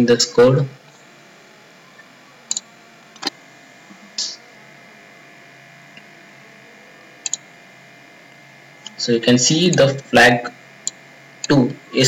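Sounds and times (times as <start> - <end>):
faint electrical hum: 0.0 - 12.0
computer mouse clicks: 2.5 - 3.3, 7.2 - 7.4.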